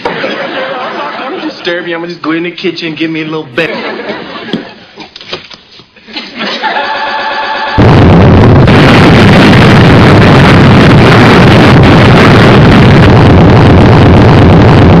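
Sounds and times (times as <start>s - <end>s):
distorted explosion rumble: 7.8s - 15.0s.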